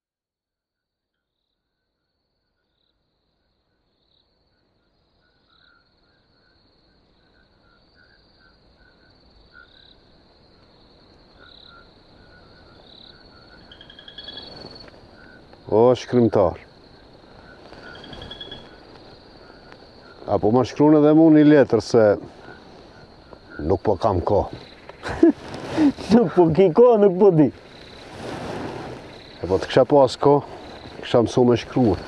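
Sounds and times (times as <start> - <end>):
low insect chirps: 0.6 - 32.0
insects trilling: 1.1 - 32.0.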